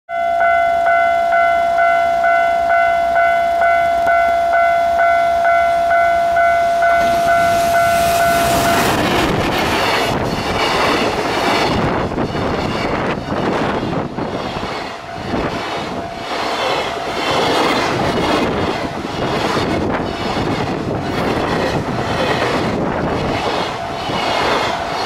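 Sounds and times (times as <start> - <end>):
level crossing bell ringing: 0.1 - 8.8
train rumble: 1.6 - 25.0.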